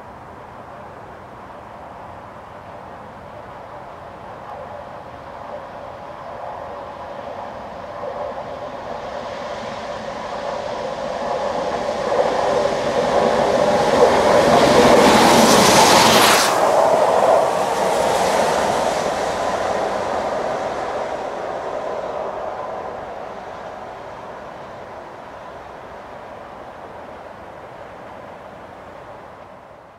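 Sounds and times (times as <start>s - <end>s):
steam locomotive passing: 6.8s - 29.7s.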